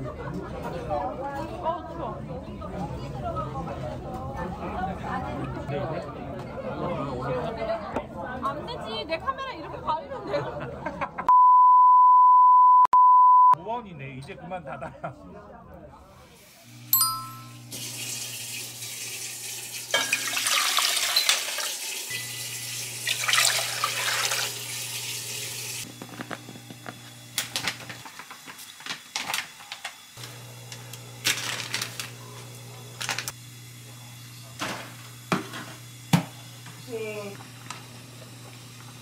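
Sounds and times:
tap water running into sink: 0:17.7 - 0:25.8
dishes clinking: 0:19.9 - 0:22.5.

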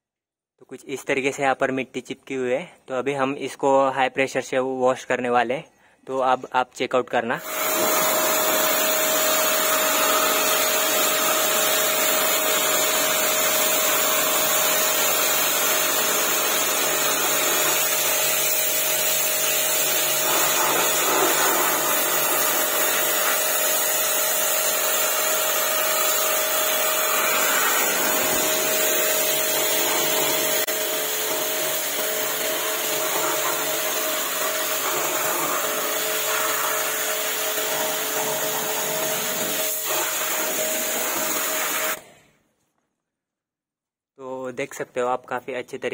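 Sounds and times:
high-pressure water jet hissing: 0:07.4 - 0:42.0
pressure washer motor whine: 0:07.4 - 0:42.0.

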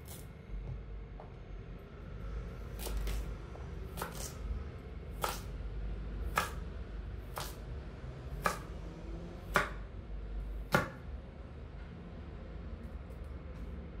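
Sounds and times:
knife chopping on wooden board: 0:02.8 - 0:04.4, 0:05.1 - 0:05.5, 0:06.3 - 0:06.6, 0:07.3 - 0:07.6, 0:08.4 - 0:08.7, 0:09.4 - 0:09.8, 0:10.6 - 0:11.0.

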